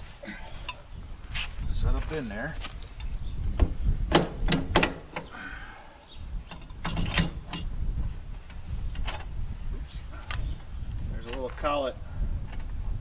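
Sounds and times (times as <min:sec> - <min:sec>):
metal parts clicking and clinking: 0:06.5 - 0:07.7.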